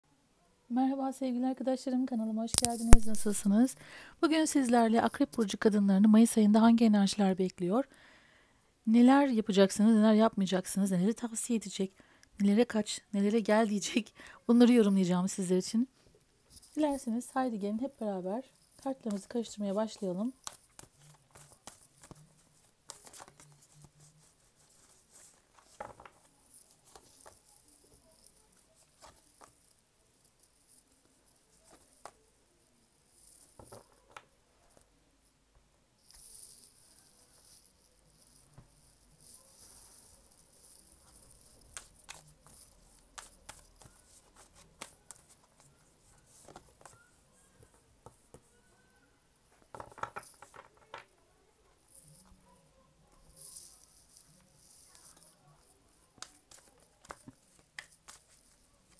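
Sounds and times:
cards shuffling clicks: 2.5 - 3.5, 20.3 - 24.0, 40.7 - 47.1, 56.2 - 58.9.

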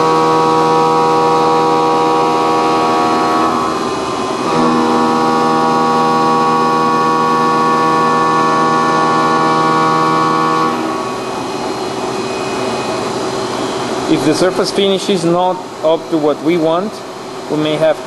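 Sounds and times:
machine running hum: 0.0 - 18.0
milling machine cutting whine: 0.0 - 18.0.

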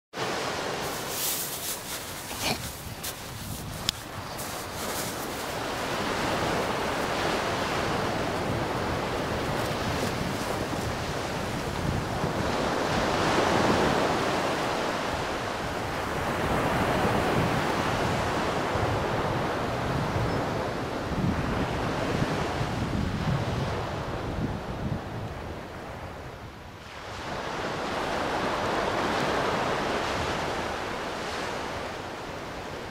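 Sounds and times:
waves washing on pebble beach: 0.2 - 18.2
wind buffeting microphone: 0.8 - 30.8.

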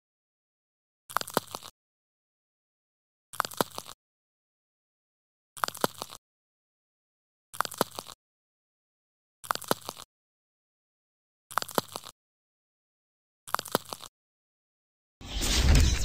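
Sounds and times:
sharp clicks and crackle: 1.1 - 1.8, 3.4 - 4.0, 5.6 - 6.2, 7.6 - 8.2, 9.4 - 10.1, 11.5 - 12.2, 13.5 - 14.1.

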